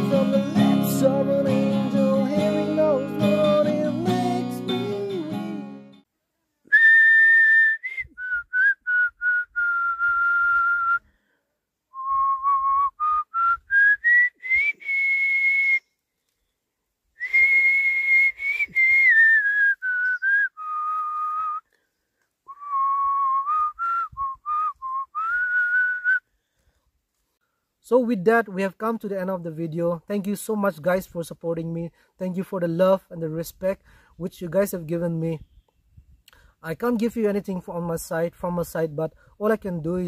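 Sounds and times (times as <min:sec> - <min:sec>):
person whistling a melody: 0:06.7 - 0:11.1, 0:11.9 - 0:16.0, 0:17.2 - 0:21.7, 0:22.5 - 0:26.3.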